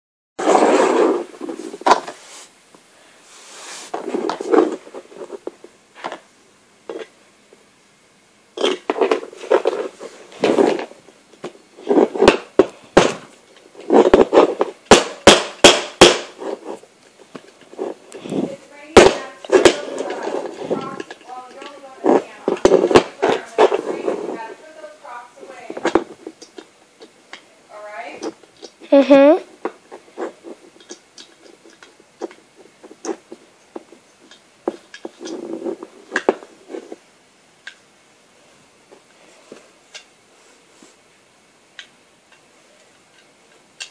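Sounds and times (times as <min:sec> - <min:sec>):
plastic bricks scraping: 0:03.9 - 0:06.2, 0:08.6 - 0:11.0, 0:17.4 - 0:24.6, 0:30.0 - 0:37.0.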